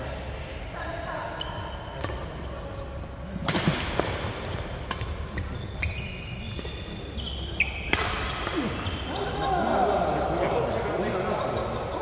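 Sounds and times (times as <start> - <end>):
rackets smacking shuttlecock: 3.4 - 5.6, 7.7 - 9.0
sneakers squeaking on wooden floor: 5.3 - 9.4.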